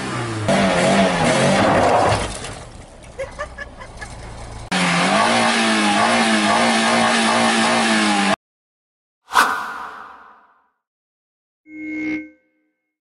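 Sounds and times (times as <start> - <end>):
petrol engine revving: 0.0 - 2.6, 3.7 - 8.4.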